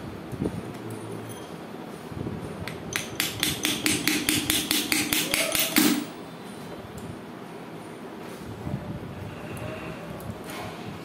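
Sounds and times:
rapid metallic taps: 0:02.9 - 0:06.1.

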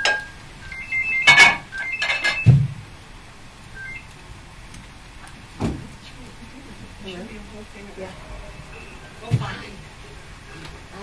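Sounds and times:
utensils clinking against dishes: 0:01.2 - 0:02.5.

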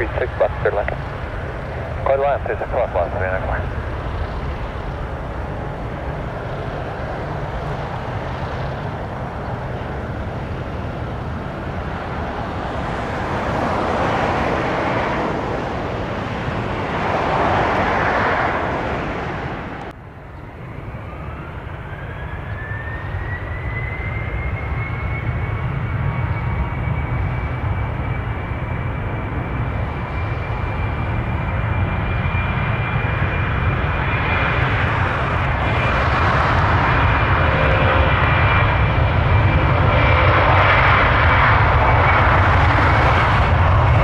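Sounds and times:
jet engine roar: 0:00.0 - 0:44.0
turbine whine rising in pitch: 0:20.6 - 0:29.8.

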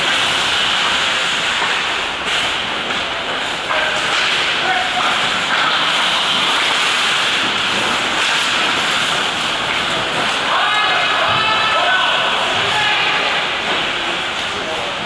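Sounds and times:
skate blades scraping ice: 0:00.0 - 0:11.8
players shouting: 0:10.1 - 0:13.9.

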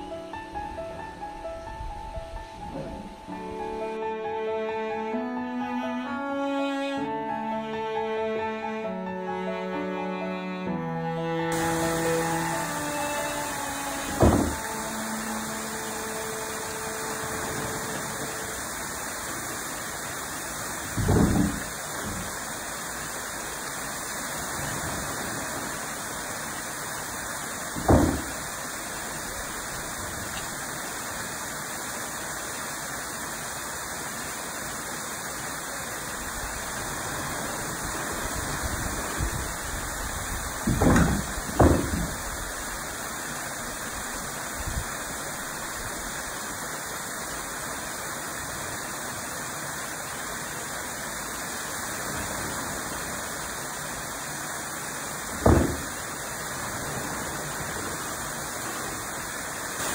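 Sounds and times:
stream rushing over weir: 0:00.0 - 0:59.9
wooden pestle thudding: 0:14.1 - 0:14.6, 0:40.7 - 0:42.2, 0:55.4 - 0:55.9.

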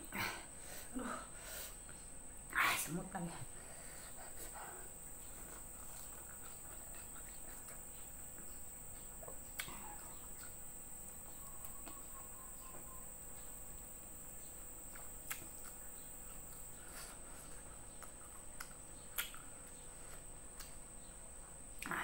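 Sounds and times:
person eating and chewing: 0:04.1 - 0:12.8, 0:14.8 - 0:20.8.

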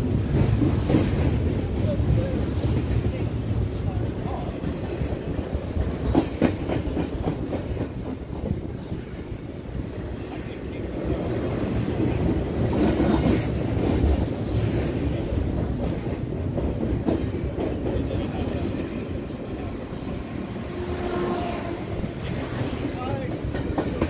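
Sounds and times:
clickety-clack of rail joints: 0:00.0 - 0:24.0
freight train wheels rumbling on rail: 0:00.0 - 0:24.0.

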